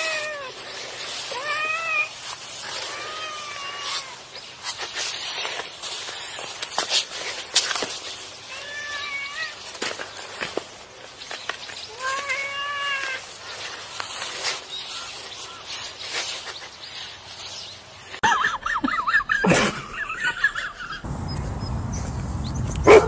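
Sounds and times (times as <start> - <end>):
cat meowing: 2.8 - 4.2, 8.5 - 9.6, 11.9 - 14.0
steady low rush: 21.0 - 22.9.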